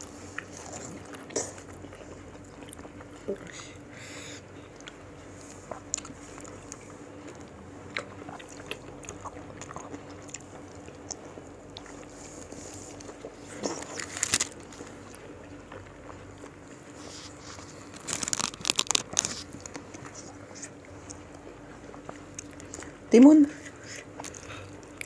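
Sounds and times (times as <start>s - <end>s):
person chewing crunchy fruit: 0.0s - 25.0s
wet crunchy clicks: 17.9s - 20.0s.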